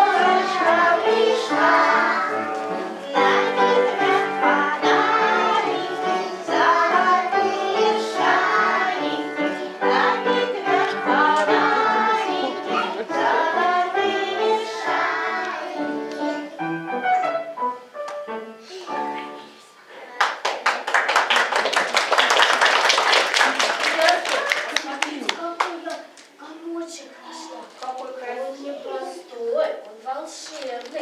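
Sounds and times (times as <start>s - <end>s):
children singing together: 0.0s - 16.9s
musical accompaniment: 0.0s - 20.0s.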